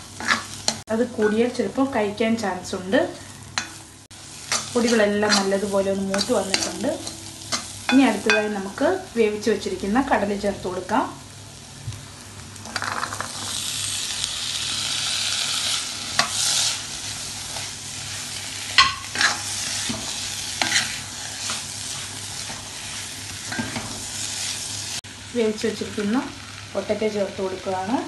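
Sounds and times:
chickpeas sizzling in hot pan: 0.0 - 28.0
steel spatula scraping pan: 4.5 - 7.7, 17.5 - 24.5.

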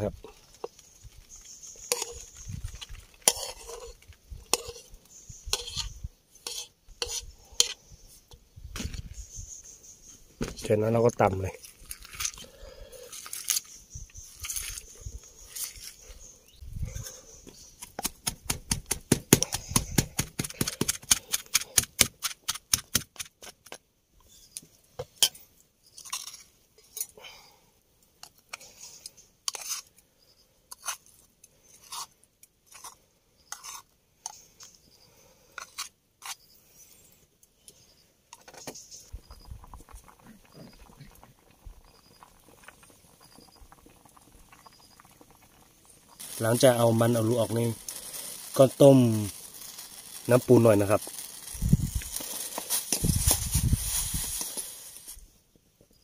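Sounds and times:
pestle pounding in a mortar: 18.0 - 23.3.

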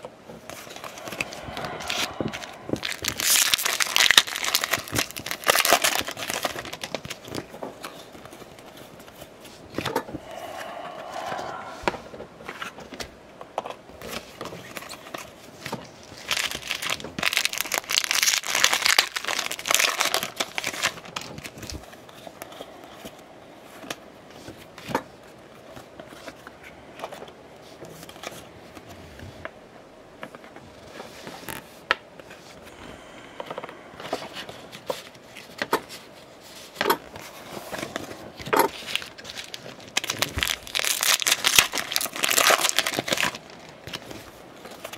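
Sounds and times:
crinkling rustle: 2.4 - 9.9, 14.0 - 23.1, 34.1 - 44.9.

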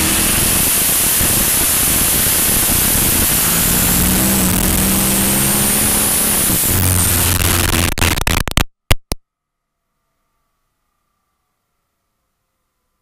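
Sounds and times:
car engine running low: 0.0 - 9.2
wind and road noise: 0.0 - 9.2.

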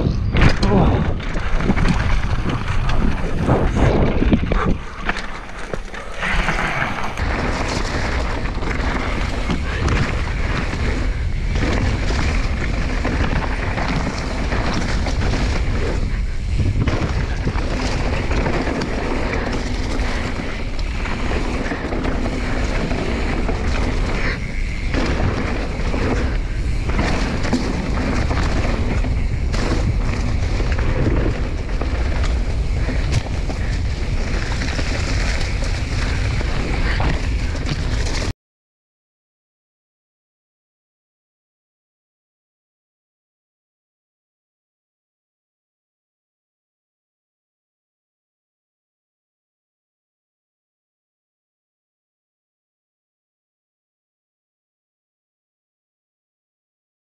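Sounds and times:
wind buffeting microphone: 0.0 - 5.1, 6.5 - 38.2
bike tyres rolling on dirt: 0.0 - 38.3
bike knocks and rattles: 0.1 - 6.2, 7.0 - 38.3.

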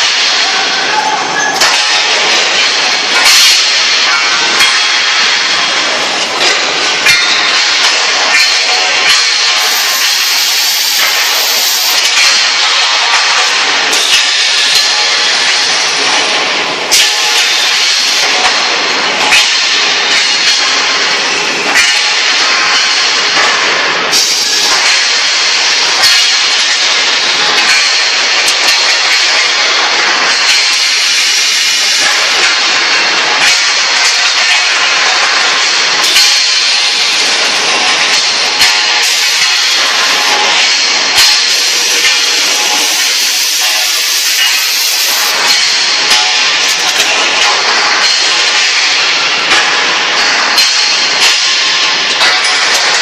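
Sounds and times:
metallic clanks of steel tubes: 0.0 - 53.0
tube mill machinery din: 0.0 - 53.0.

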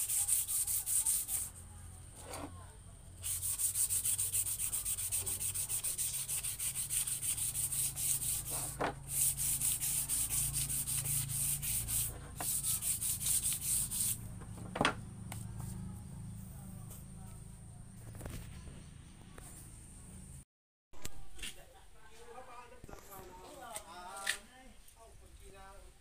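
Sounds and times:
sandpaper rubbing wood: 0.0 - 1.5, 3.2 - 14.2.

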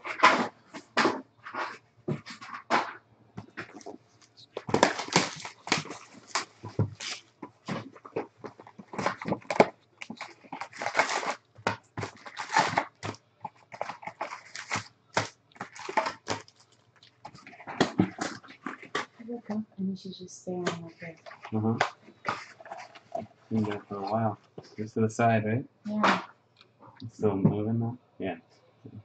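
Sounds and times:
foil packs crinkling: 3.5 - 19.2, 20.8 - 24.0.

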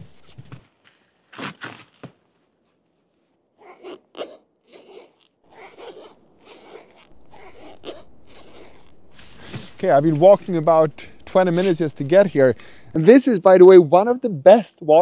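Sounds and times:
faint outdoor background: 0.0 - 15.0
microphone handling rustle: 5.5 - 13.0.

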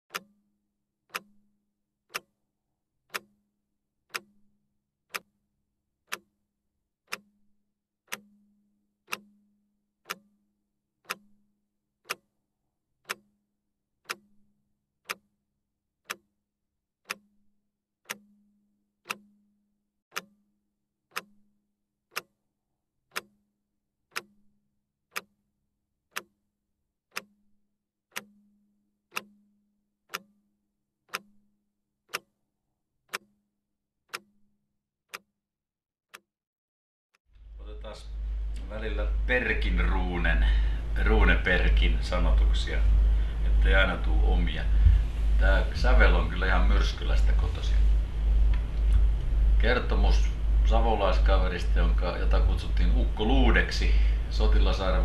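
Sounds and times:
sharp ticking with low ring: 0.1 - 2.5, 3.1 - 5.4, 7.1 - 12.4, 13.0 - 15.4, 17.0 - 22.4, 23.1 - 25.4, 27.1 - 32.4, 38.0 - 55.0.

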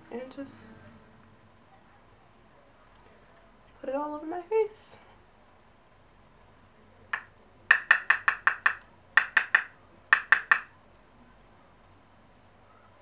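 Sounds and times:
brush tapping plastic jar: 7.2 - 10.7.

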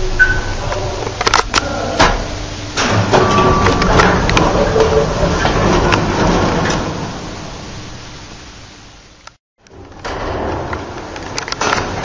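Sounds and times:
elevator car low rumble: 0.0 - 12.0
elevator clicks and rattles: 2.8 - 7.2, 9.6 - 12.0.

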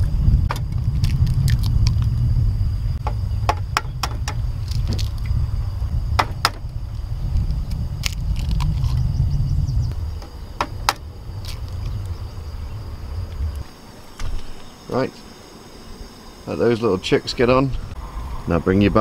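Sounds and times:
eggs frying and crackling: 0.0 - 2.3
low rumble: 0.0 - 14.6, 17.2 - 19.0.

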